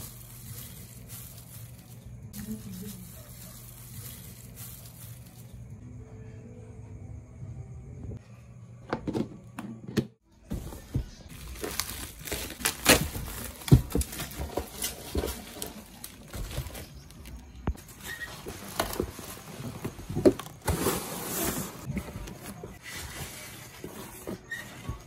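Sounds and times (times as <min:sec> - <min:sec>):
cardboard box rustling and scraping: 0:17.8 - 0:25.0.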